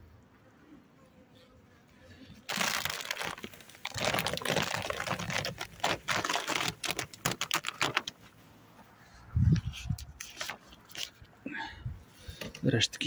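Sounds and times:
plastic sheet crinkling and crackling: 0:02.5 - 0:08.3, 0:10.2 - 0:11.1.

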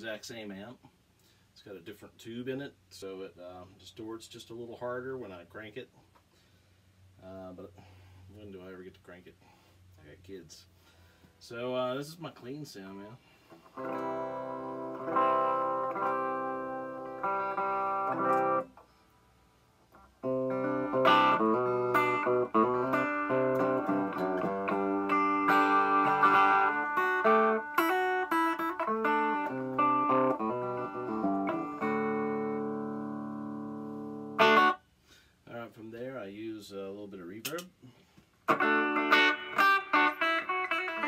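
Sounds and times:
clean electric guitar playing: 0:13.7 - 0:18.7, 0:19.9 - 0:34.8, 0:38.5 - 0:41.0.

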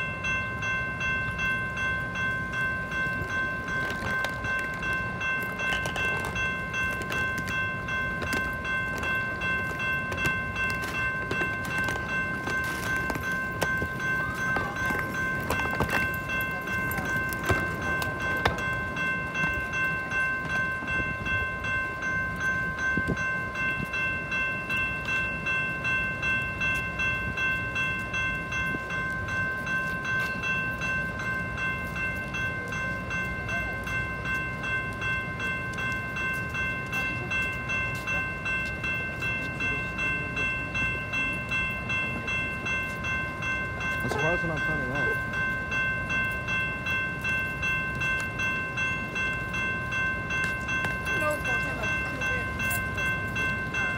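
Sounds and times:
railroad crossing bell ringing: 0:00.0 - 0:53.9.

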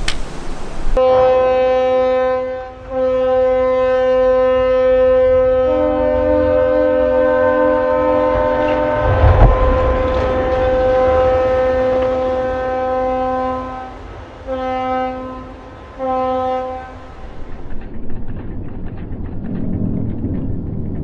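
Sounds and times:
ship's horn blasts: 0:01.0 - 0:17.2
hull sliding into water rumble: 0:08.2 - 0:14.3.

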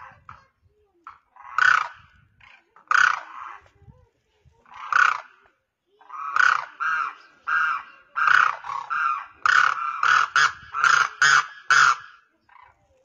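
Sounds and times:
crane calling: 0:06.0 - 0:12.8.

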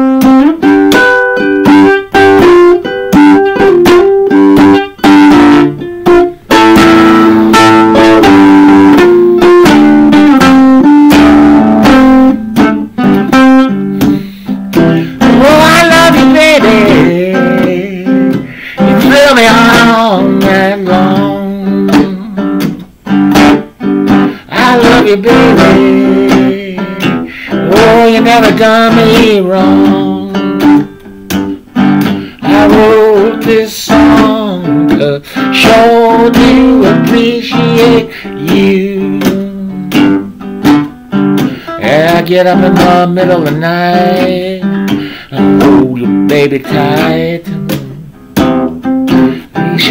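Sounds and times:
blues guitar solo: 0:00.0 - 0:49.9.

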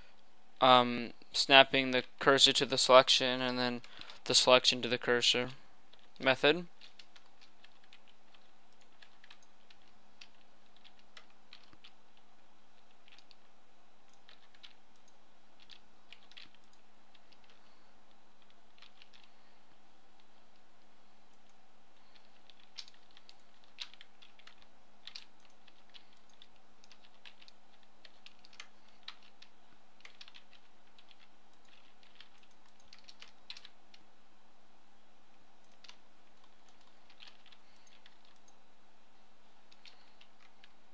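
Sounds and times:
low electrical hum: 0:00.0 - 0:40.9
keyboard keystrokes: 0:22.1 - 0:33.7.

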